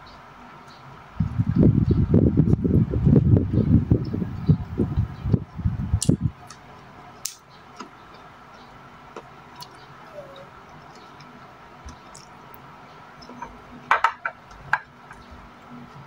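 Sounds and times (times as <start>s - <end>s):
soft chewing: 9.5s - 13.6s.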